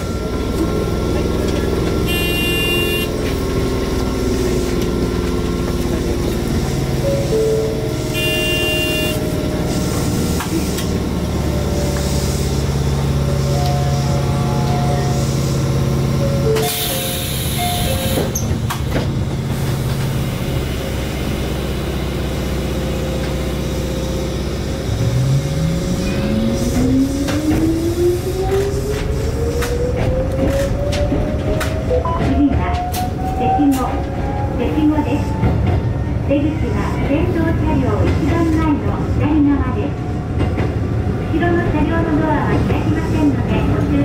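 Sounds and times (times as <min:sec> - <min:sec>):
train electrical hum: 0:00.0 - 0:24.9.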